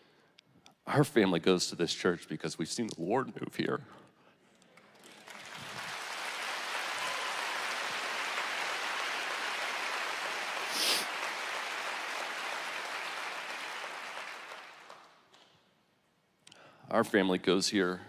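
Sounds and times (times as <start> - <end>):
crowd applauding: 4.8 - 15.4.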